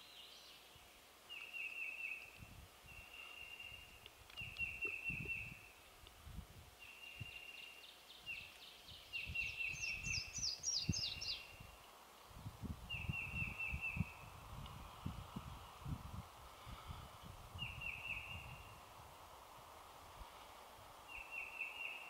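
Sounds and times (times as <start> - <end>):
small songbirds singing: 0.0 - 5.8, 6.8 - 12.0, 12.9 - 14.4, 17.6 - 18.9, 21.1 - 22.0
low rustling and buffeting: 11.4 - 21.1.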